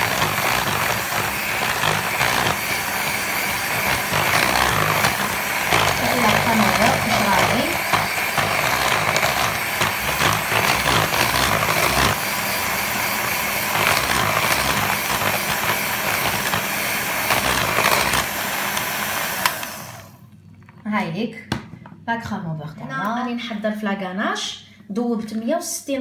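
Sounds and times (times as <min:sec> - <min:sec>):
electric hand mixer running: 0:00.0 - 0:20.3.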